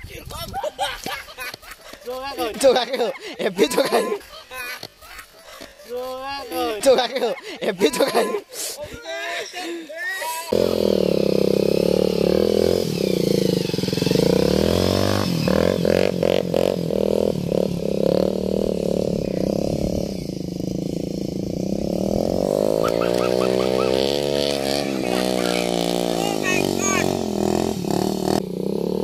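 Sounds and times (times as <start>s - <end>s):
motorcycle engine revving: 10.5s - 29.0s.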